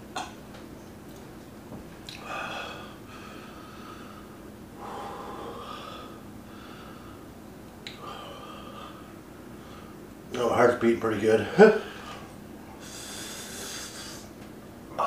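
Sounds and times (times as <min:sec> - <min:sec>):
man breathing hard: 0:02.2 - 0:07.4, 0:08.0 - 0:10.0, 0:11.6 - 0:14.4.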